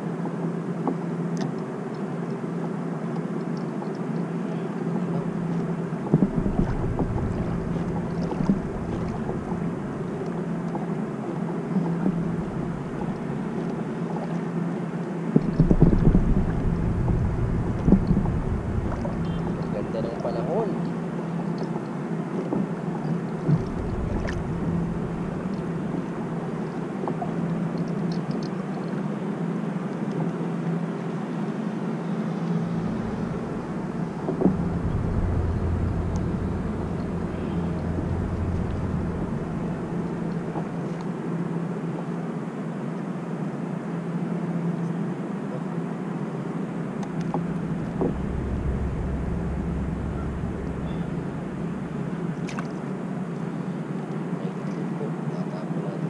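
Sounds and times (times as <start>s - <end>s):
boat engine humming: 4.0s - 29.8s, 30.4s - 41.9s, 46.5s - 54.0s
wind on microphone: 5.2s - 10.4s, 11.9s - 13.7s, 15.4s - 20.4s, 23.4s - 27.4s, 32.4s - 41.0s, 47.0s - 53.1s.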